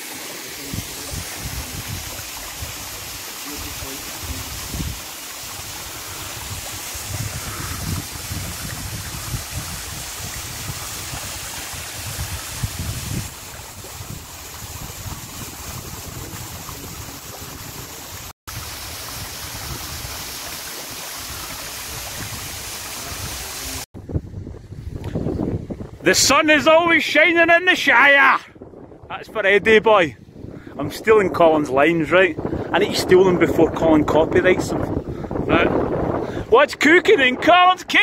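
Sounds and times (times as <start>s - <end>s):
waterfall splashing: 0.0s - 23.9s
wind buffeting microphone: 0.6s - 20.5s, 21.2s - 27.0s, 28.5s - 36.6s.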